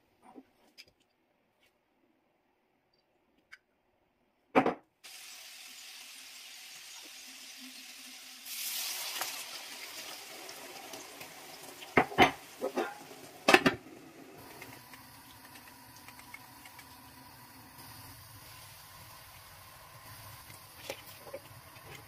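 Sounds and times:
liquid sizzling on hot griddle: 5.0s - 22.0s
cookware clacking: 12.0s - 13.8s.

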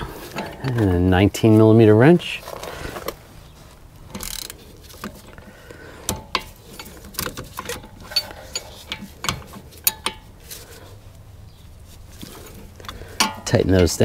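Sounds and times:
hand ratchet clicking: 4.1s - 5.4s
wrench clinking on metal: 4.1s - 5.4s, 6.1s - 10.3s, 12.8s - 14.0s.

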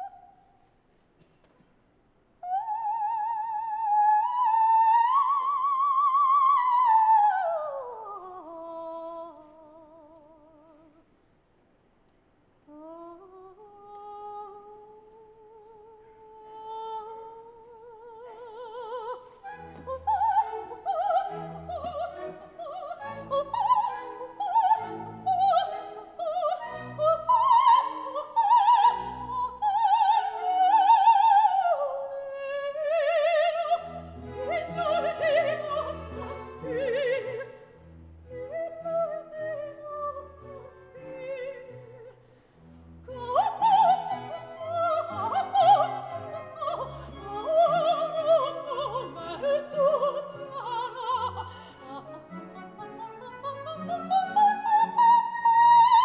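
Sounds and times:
soprano singing: 2.4s - 11.1s, 12.6s - 56.0s
orchestra playing: 18.2s - 31.2s.

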